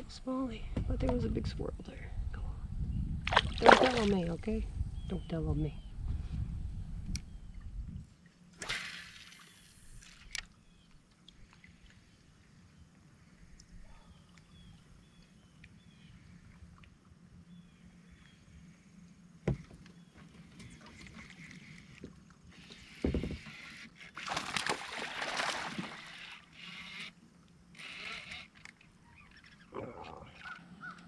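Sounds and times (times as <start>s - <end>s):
water lapping: 3.3s - 4.3s, 20.0s - 27.2s
fish splashing at the surface: 24.2s - 26.2s.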